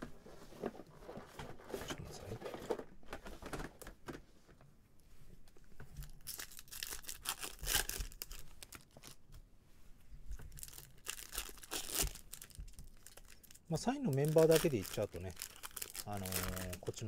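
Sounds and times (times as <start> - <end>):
foil wrapper tearing and crinkling: 6.0 - 9.2, 10.5 - 17.0.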